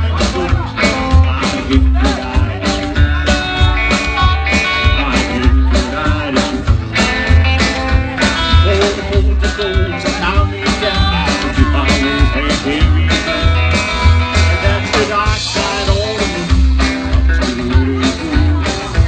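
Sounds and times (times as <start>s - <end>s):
live rock and roll band: 0.0s - 19.0s.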